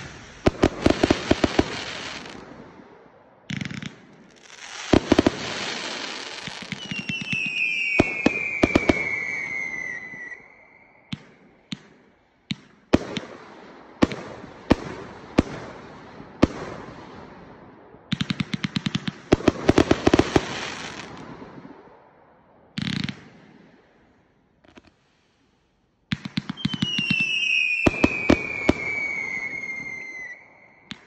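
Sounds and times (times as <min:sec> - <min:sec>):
firework crackling: 0:00.0 - 0:02.7, 0:03.5 - 0:10.4, 0:18.9 - 0:21.3
firework bangs: 0:00.0 - 0:10.4, 0:26.1 - 0:31.0
falling firework whistle: 0:04.4 - 0:11.6, 0:26.5 - 0:31.0.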